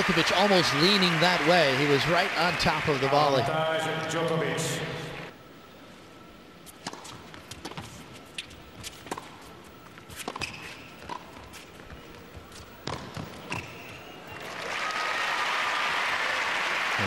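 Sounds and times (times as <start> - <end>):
crowd applause: 0.0 - 4.0, 14.2 - 17.0
shoe squeaks: 6.7 - 14.4
tennis ball bounces: 6.8 - 14.0.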